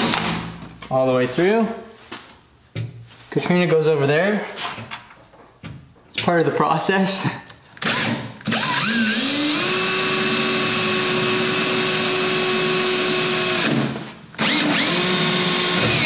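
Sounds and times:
cordless drill boring sheet metal: 0:07.8 - 0:13.8, 0:14.4 - 0:16.0.

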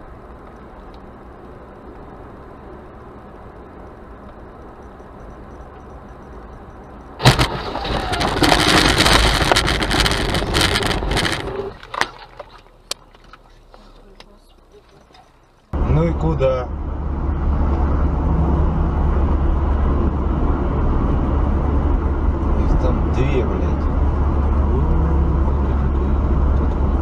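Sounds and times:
car road noise: 0:00.0 - 0:27.0
loud crash: 0:07.2 - 0:11.7
debris pelting car: 0:07.2 - 0:13.7.

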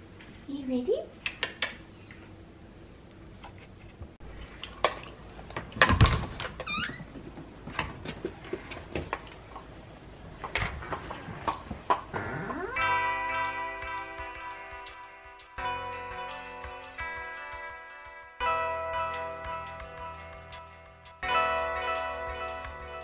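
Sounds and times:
door squeaking: 0:06.0 - 0:07.1, 0:12.1 - 0:12.9.

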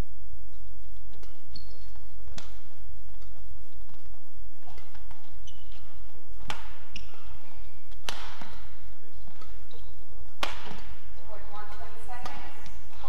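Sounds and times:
shoes squeaking on court: 0:00.5 - 0:11.2
racket striking shuttlecock: 0:01.1 - 0:01.6, 0:02.2 - 0:11.1, 0:12.2 - 0:13.0.

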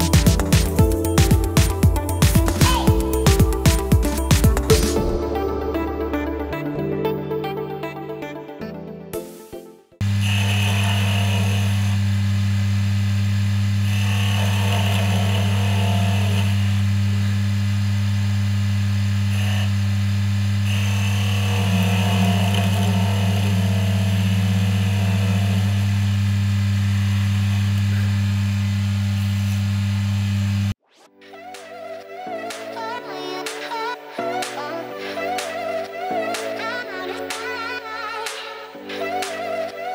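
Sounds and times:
chisel cutting spinning wood: 0:10.0 - 0:17.1, 0:19.0 - 0:30.7
wood lathe motor humming: 0:10.0 - 0:30.7.

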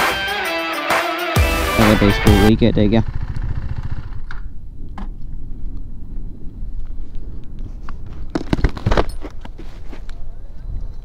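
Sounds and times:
motorcycle engine running: 0:01.5 - 0:04.7.

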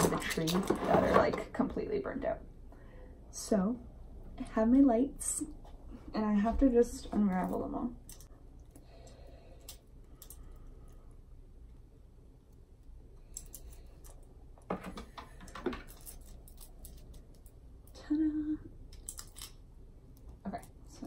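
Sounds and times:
plastic bulbs and wire rattling: 0:13.2 - 0:17.6.

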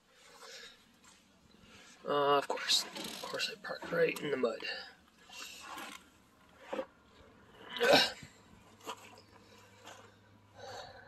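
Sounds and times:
footsteps in wet mud: 0:08.6 - 0:10.3.

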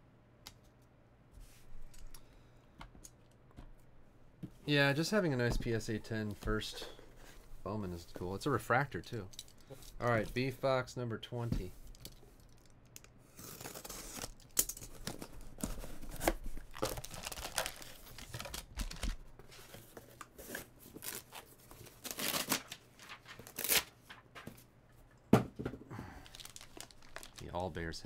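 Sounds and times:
foil crinkling: 0:13.5 - 0:19.3, 0:21.0 - 0:24.4, 0:26.2 - 0:27.9.

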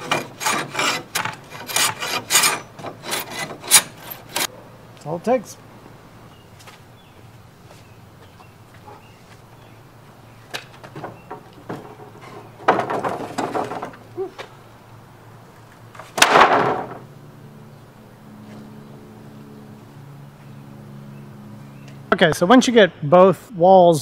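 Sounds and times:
wooden frame knocking and clattering: 0:10.5 - 0:14.0, 0:16.2 - 0:17.0
loud wooden slam: 0:12.6 - 0:14.0, 0:16.2 - 0:17.1.

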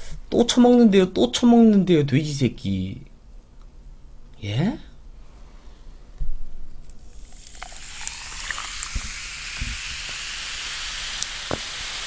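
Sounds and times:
cola fizzing in a cup: 0:07.0 - 0:12.0.

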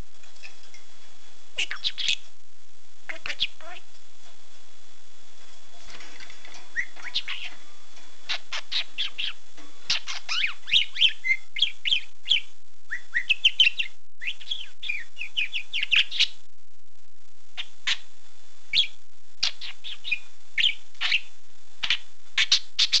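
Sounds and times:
budgerigar chirping and warbling: 0:01.6 - 0:02.2, 0:03.1 - 0:03.8, 0:06.7 - 0:07.6, 0:08.3 - 0:16.3, 0:17.6 - 0:18.0, 0:18.7 - 0:23.0.

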